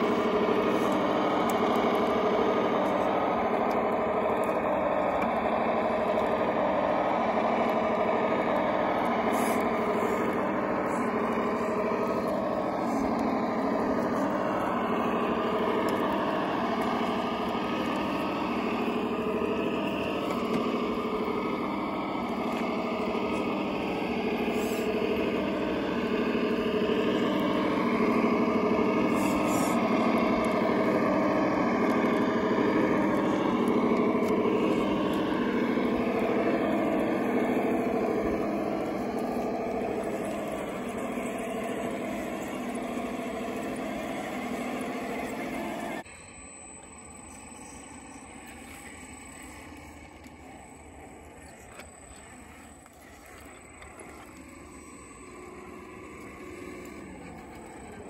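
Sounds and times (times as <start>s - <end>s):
toy truck electric motor whine: 0.0s - 58.0s.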